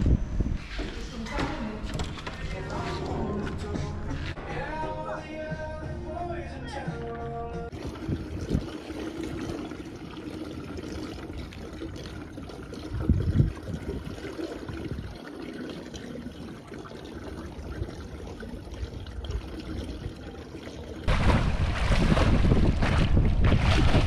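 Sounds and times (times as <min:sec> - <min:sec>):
low water surge: 0:07.7 - 0:24.0
water running and splashing: 0:07.7 - 0:24.0.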